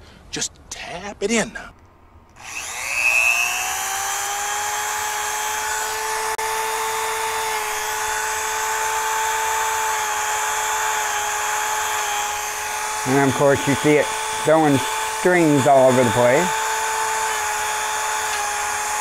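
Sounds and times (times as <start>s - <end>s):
rotary tool high whine: 2.4s - 19.0s
buffing wheel tapping plastic: 18.2s - 18.6s.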